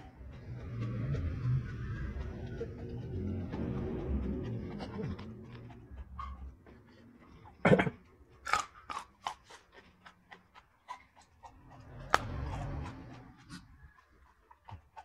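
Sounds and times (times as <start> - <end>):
wet crunchy chewing: 4.9 - 15.0
sharp crunch of biting: 7.7 - 15.0.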